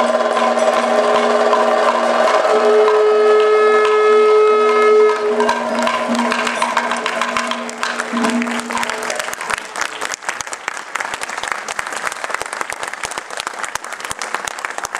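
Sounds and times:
held horn-like tone: 0.0s - 9.8s
audience applauding: 0.0s - 14.9s.

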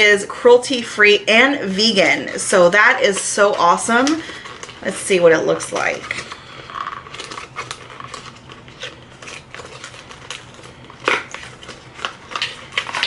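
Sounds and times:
cardboard box crackling: 3.1s - 13.0s
cardboard snapping: 7.0s - 13.0s.

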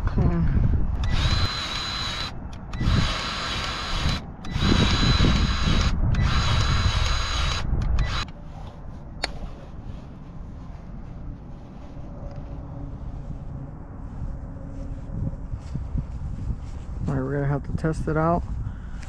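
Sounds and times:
grease gun motor whining: 1.0s - 8.3s.

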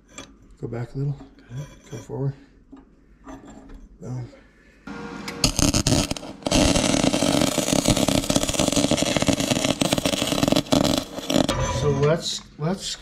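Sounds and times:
welding arc crackling: 5.3s - 11.6s.

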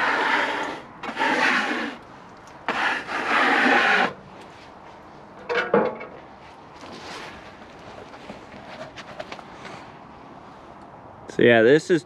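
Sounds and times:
rubbing strokes on wet wood: 0.0s - 2.0s, 2.7s - 4.2s.

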